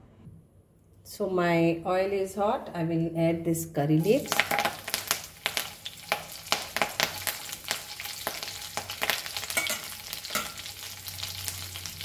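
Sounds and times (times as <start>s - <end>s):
leaves sizzling and popping in oil: 4.0s - 12.0s.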